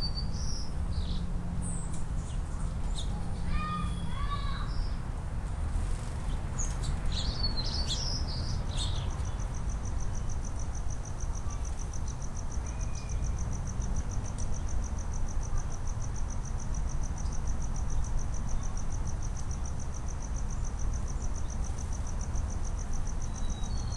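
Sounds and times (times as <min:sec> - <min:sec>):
low outdoor rumble: 0:00.0 - 0:23.9
small bird chirps: 0:06.2 - 0:09.5, 0:11.4 - 0:13.4, 0:23.2 - 0:23.9.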